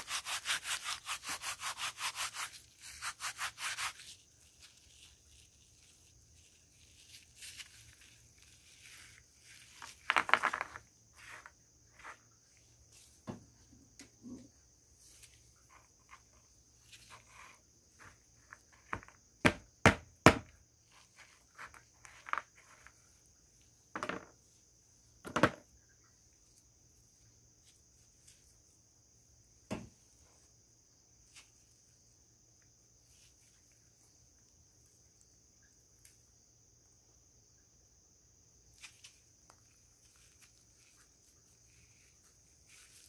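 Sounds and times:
mothballs crunching and snapping: 2.4s - 11.5s.

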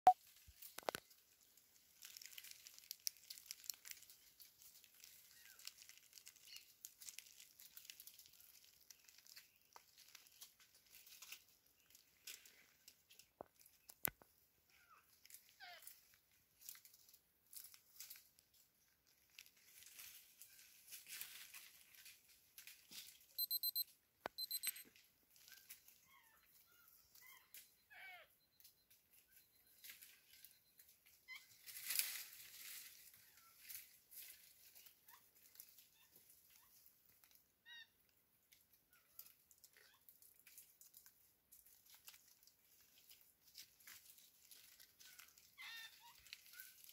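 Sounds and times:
dry leaves rustling and crackling: 0.2s - 13.8s, 15.2s - 23.2s, 31.5s - 37.4s, 39.1s - 46.9s
high pips: 23.4s - 24.8s
faint squeaky chirps: 23.4s - 31.9s.

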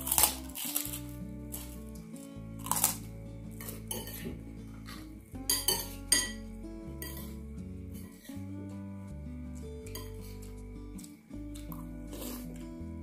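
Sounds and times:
background music: 0.0s - 13.0s
spoons clinking on ceramic bowls: 3.9s - 4.4s, 5.4s - 6.4s, 7.0s - 7.4s, 9.9s - 10.3s.

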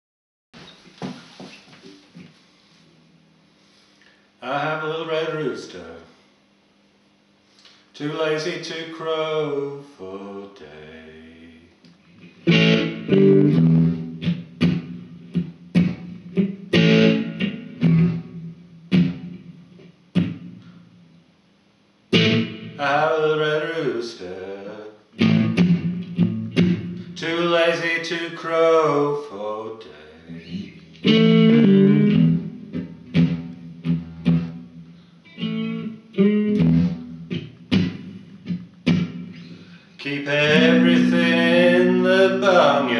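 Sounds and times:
electric guitar blues fill: 12.2s - 20.9s, 22.1s - 24.6s, 25.2s - 29.2s, 30.2s - 42.9s.

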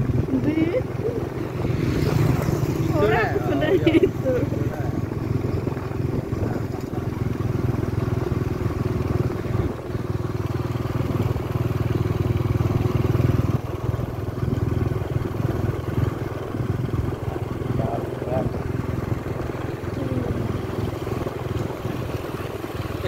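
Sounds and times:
road noise: 0.0s - 23.0s
vehicle engine drone: 0.0s - 23.0s.

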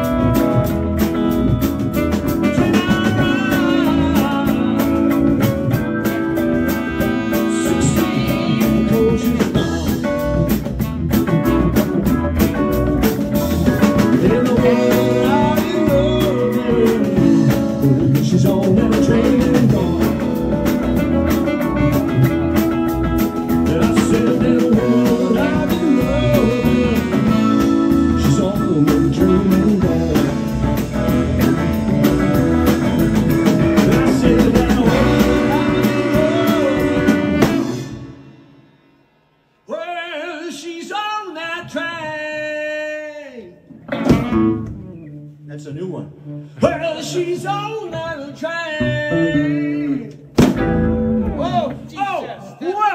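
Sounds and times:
electric guitar bent notes: 0.0s - 38.7s
blues-rock band playing: 0.0s - 38.8s, 43.7s - 45.5s, 48.8s - 51.9s.

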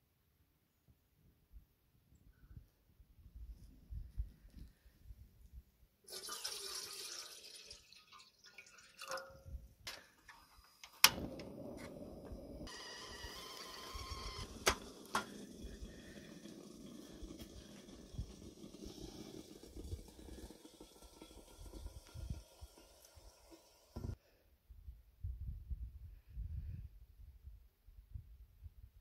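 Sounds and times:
water running: 6.1s - 9.4s, 12.2s - 24.0s
gas burner hissing: 10.3s - 24.2s.

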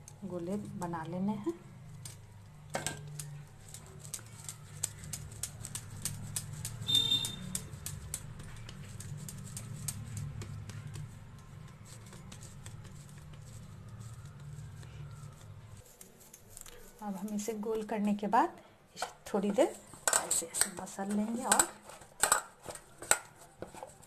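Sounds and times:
dough slapping in bowl: 3.0s - 14.5s.

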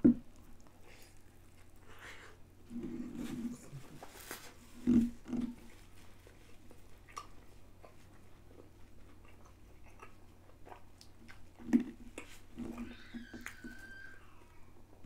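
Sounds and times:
person chewing: 5.1s - 13.8s.

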